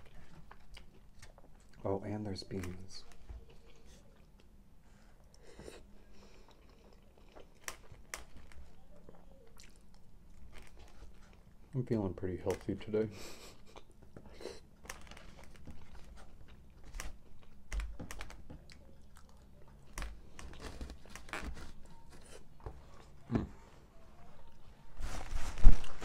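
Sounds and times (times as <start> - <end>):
chewing and biting food: 6.3 - 11.6.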